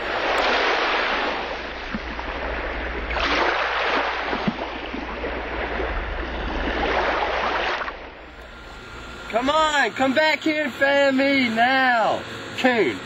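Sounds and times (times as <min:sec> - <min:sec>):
water rushing and splashing: 0:00.0 - 0:09.8.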